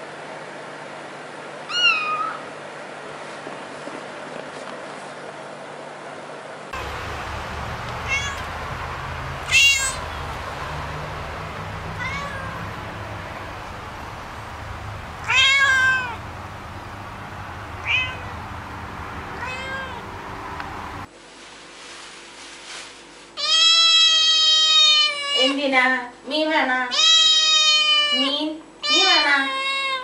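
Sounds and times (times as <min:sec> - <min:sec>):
cat meowing: 0:01.7 - 0:02.4, 0:07.6 - 0:13.2, 0:13.8 - 0:16.3, 0:17.3 - 0:18.6, 0:19.3 - 0:20.2, 0:23.4 - 0:25.5, 0:26.9 - 0:30.0
rain hissing: 0:06.8 - 0:21.1.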